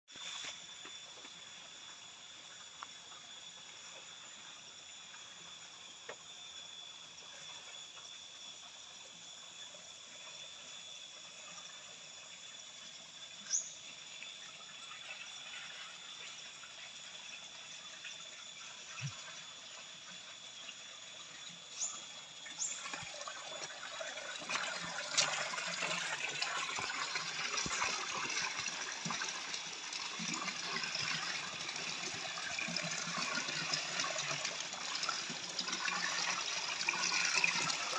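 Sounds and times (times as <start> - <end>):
faint insect hum: 0.1 - 37.9
short insect chirps: 0.1 - 37.9
water pouring into basin: 22.4 - 37.9.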